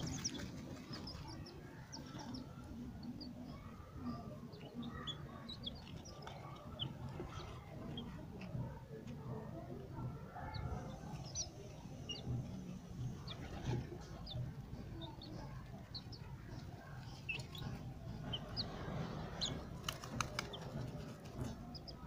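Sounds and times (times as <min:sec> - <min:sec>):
chicks peeping: 0:00.0 - 0:22.0.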